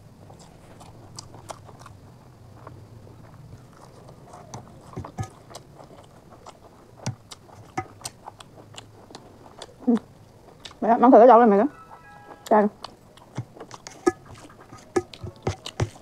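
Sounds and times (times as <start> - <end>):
wet chewing and lip smacks: 0.2 - 10.8, 11.9 - 16.0
fingers squishing food on plate: 3.6 - 10.8, 11.9 - 16.0.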